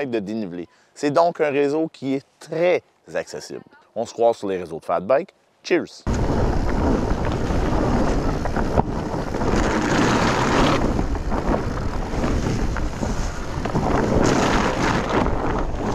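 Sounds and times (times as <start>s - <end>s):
tyres rolling on leaves and snow: 6.1s - 15.9s
wind buffeting microphone: 6.1s - 15.9s.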